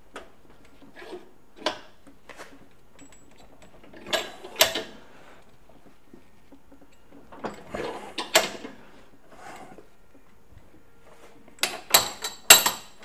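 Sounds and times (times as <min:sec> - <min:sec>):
vise screw creaking and scraping: 0:07.3 - 0:09.8.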